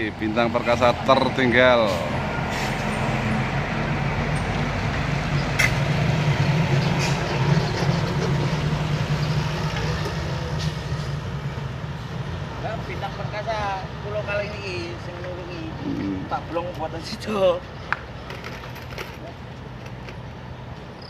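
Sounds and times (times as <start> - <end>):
truck diesel engine passing: 0.0 - 14.2.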